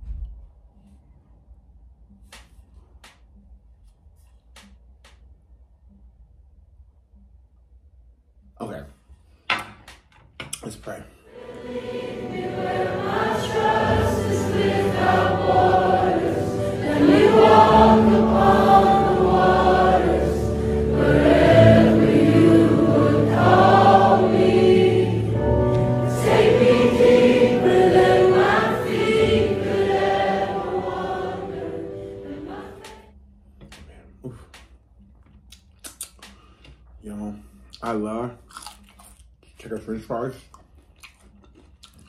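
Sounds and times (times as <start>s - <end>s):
gospel choir singing: 11.3s - 33.1s.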